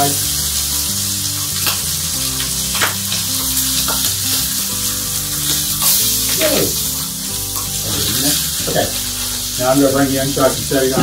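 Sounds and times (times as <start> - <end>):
meat sizzling in a skillet: 0.0 - 11.0
tongs clicking: 1.5 - 4.6, 5.3 - 8.4.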